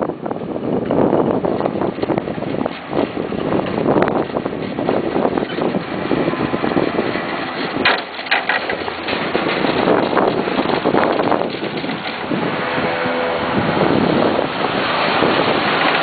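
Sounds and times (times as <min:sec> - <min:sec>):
wind buffeting microphone: 0:00.0 - 0:16.0
short clattering knocks: 0:07.5 - 0:12.3.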